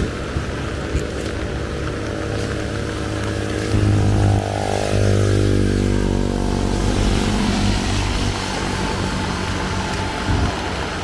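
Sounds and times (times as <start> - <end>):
rain hissing: 0.0 - 11.0
vehicle engine passing by: 2.2 - 11.0.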